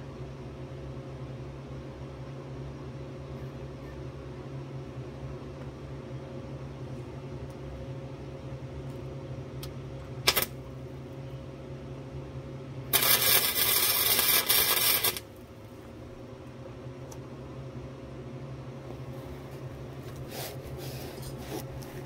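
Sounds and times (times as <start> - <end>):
welder arc crackling: 10.2 - 10.7, 12.8 - 15.5.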